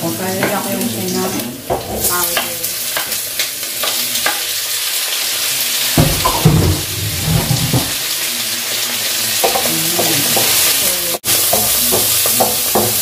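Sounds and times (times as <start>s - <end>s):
food sizzling in frying pan: 0.0s - 13.0s
knocking and scraping: 6.0s - 8.0s.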